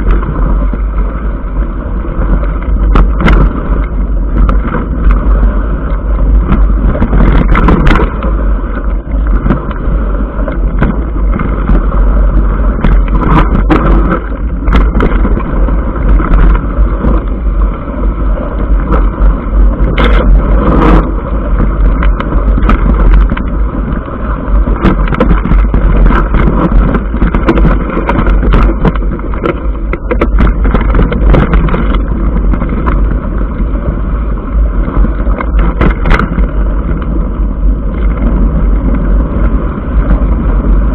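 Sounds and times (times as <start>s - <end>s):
bike tyre rumble: 0.0s - 40.9s
wind buffeting microphone: 0.0s - 40.9s
bike clicks and knocks over stones: 34.9s - 37.2s.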